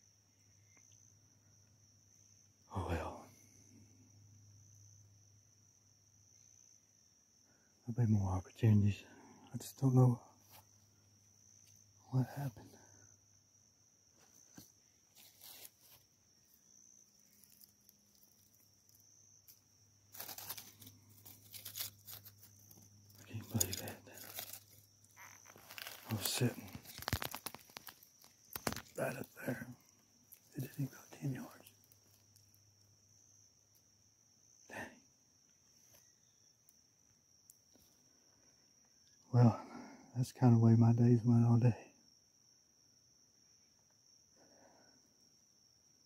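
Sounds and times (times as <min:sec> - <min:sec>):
faint high-pitched whine: 0:00.0 - 0:42.0
dry leaves crackling and rustling: 0:20.1 - 0:29.0.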